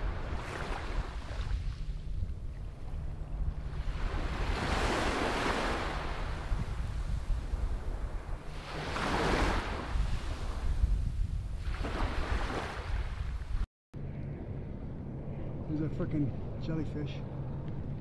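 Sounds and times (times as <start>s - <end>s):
small waves washing on sand: 0.0s - 2.4s, 3.6s - 10.8s
wind rumble on microphone: 0.0s - 18.0s.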